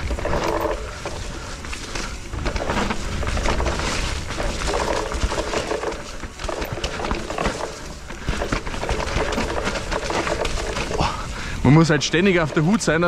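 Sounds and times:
bike rattling over roots: 0:00.0 - 0:13.0.

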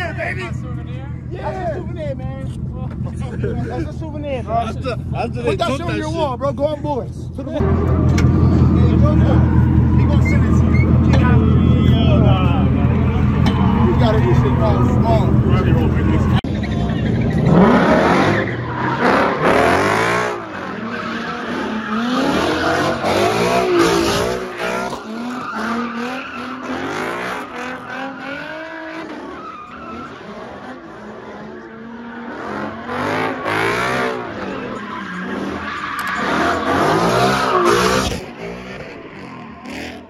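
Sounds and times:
car engine revving: 0:00.0 - 0:40.0
tyres squealing: 0:09.0 - 0:12.0, 0:12.6 - 0:40.0.

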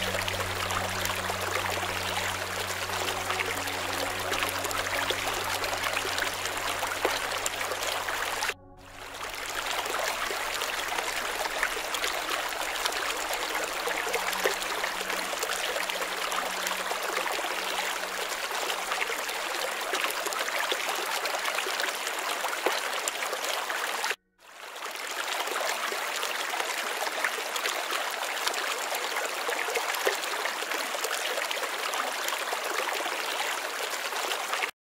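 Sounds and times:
flowing water: 0:00.0 - 0:34.7.

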